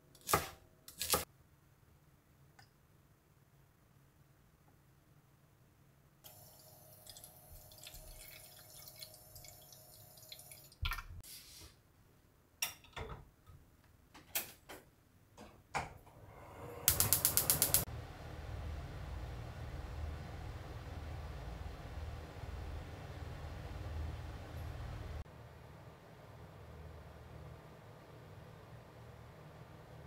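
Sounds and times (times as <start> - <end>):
liquid pouring: 6.3 - 11.2
gas burner hissing: 16.2 - 17.9
spark igniter clicking: 16.9 - 17.8.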